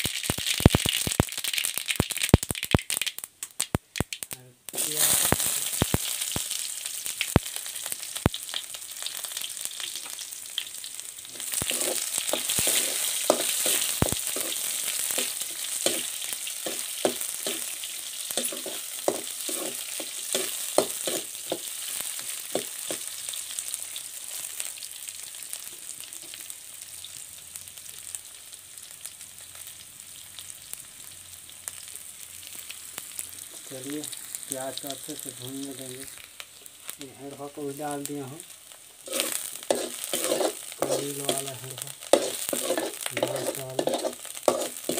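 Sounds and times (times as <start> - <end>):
onion sizzling in hot oil: 0.0 - 44.9
spoon scraping a pan: 11.3 - 17.8, 18.4 - 23.1, 39.0 - 44.9.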